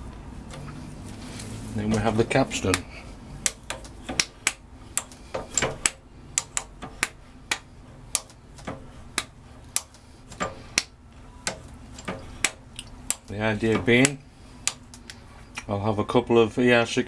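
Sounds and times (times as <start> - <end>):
sharp metallic clicks: 3.4 - 15.7.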